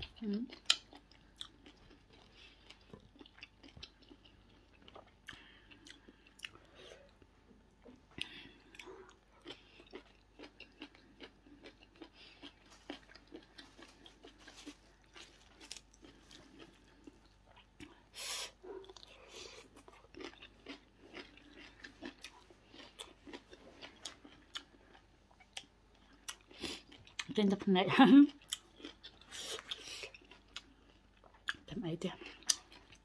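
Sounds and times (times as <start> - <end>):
person chewing food: 0.0 - 33.0.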